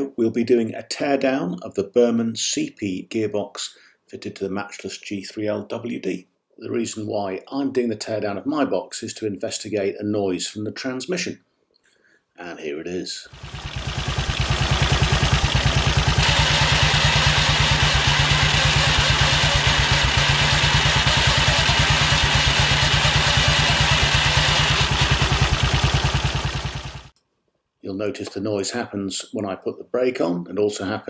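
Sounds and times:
harsh gearbox noise: 13.4 - 27.1
motorcycle engine running: 13.4 - 27.1.

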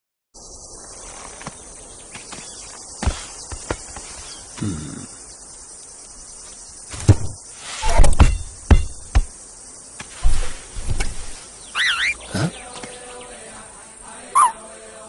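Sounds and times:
insects chirring: 0.4 - 15.0
sharp thumps: 6.9 - 9.4, 10.0 - 11.4.

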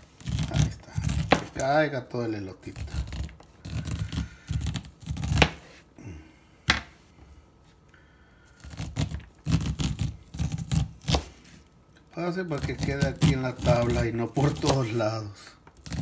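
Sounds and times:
knife scraping corn kernels: 0.0 - 5.9, 8.6 - 11.6, 12.2 - 16.0.

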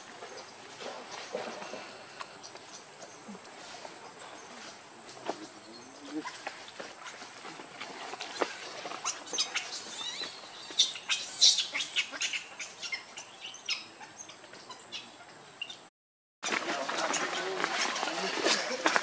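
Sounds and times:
baby monkey crying: 9.7 - 12.4.

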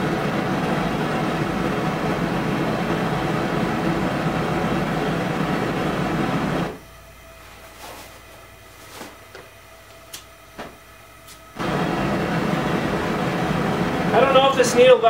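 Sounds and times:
forge burner flame rushing: 0.0 - 6.8, 11.5 - 15.0.

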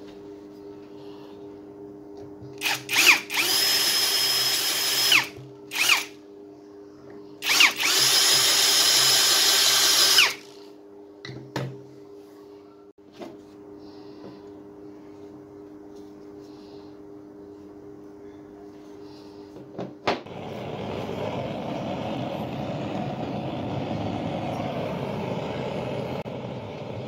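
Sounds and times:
cordless drill boring wood: 2.6 - 6.1, 7.4 - 10.6.

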